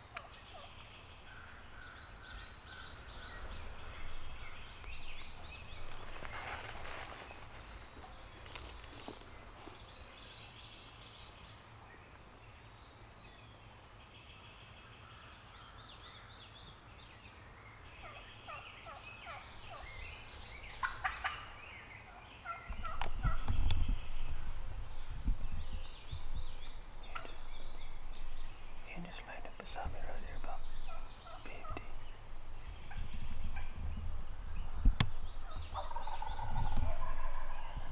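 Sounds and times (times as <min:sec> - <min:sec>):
songbirds singing: 0:00.0 - 0:37.9
turkey gobbling: 0:20.8 - 0:21.5, 0:22.1 - 0:23.4, 0:32.9 - 0:33.8, 0:35.4 - 0:37.9.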